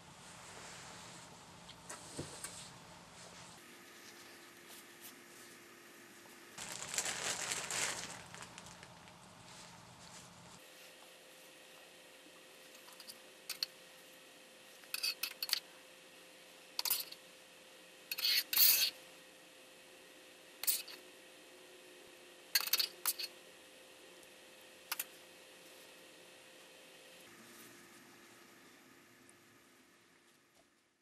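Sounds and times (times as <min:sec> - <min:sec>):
faint steady hum: 0:00.0 - 0:31.0
plastic gloves crinkling: 0:06.6 - 0:10.7.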